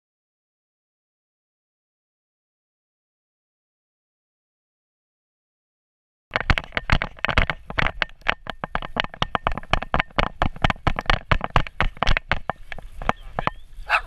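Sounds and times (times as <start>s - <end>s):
camera knocking and rattling: 6.3s - 13.7s.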